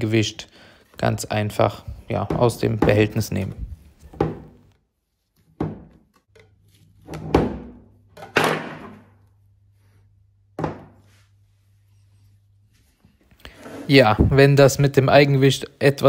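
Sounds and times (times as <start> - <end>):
plastic tub thunks and knocks: 2.2 - 3.2, 4.1 - 4.6, 5.6 - 6.0, 10.6 - 11.0.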